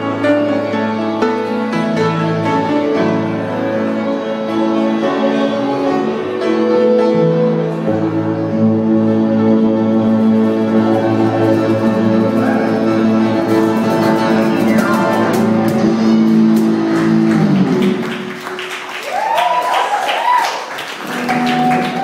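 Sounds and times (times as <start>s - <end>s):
live band music: 0.0s - 18.9s, 20.9s - 22.0s
audience clapping: 13.7s - 22.0s
whoops and cheers: 18.9s - 22.0s.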